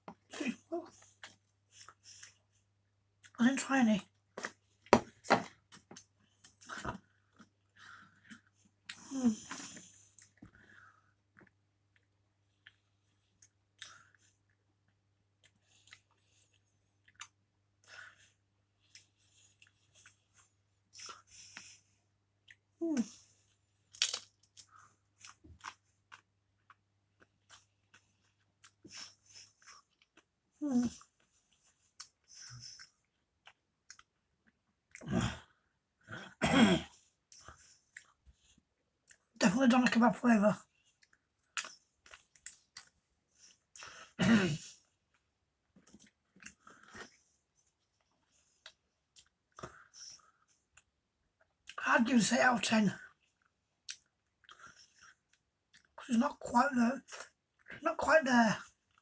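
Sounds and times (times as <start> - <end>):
crisps crunching: 23.8 - 24.7
person crunching potato crisps: 23.8 - 26.2
man coughing: 36.4 - 36.9, 44.2 - 44.7.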